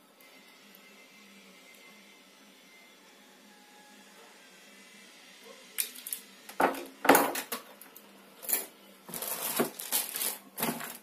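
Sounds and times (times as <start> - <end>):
plastic wrapping crinkling: 9.1 - 11.0.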